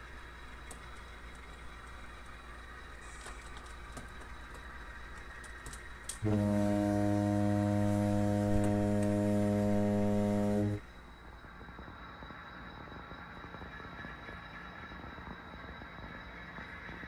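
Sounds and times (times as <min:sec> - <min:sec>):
low horn blast: 0:06.2 - 0:10.9.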